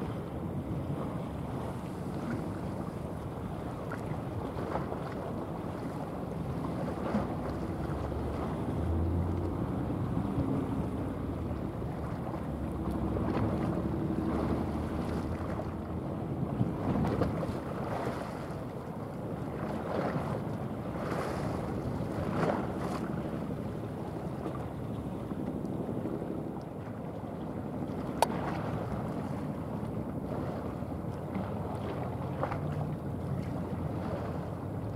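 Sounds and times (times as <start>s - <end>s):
wind on microphone: 0.0s - 18.7s
ship engine drone: 0.0s - 34.9s.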